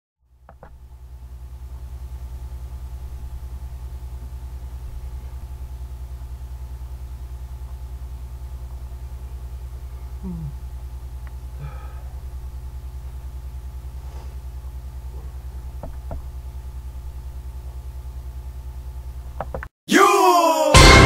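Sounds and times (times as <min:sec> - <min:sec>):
pulsing electrical hum: 0:00.2 - 0:19.6
short low vocal sound: 0:10.0 - 0:10.7.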